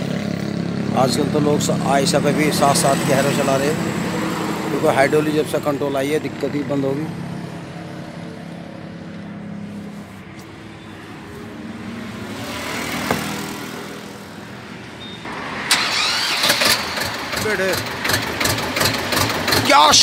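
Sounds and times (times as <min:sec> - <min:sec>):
tractor engine idling: 0:15.4 - 0:20.0.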